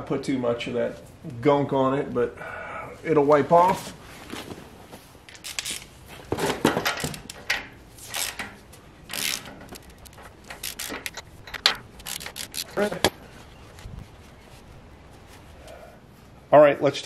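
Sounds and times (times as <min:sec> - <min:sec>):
wrench metallic rasping: 0:07.0 - 0:13.1.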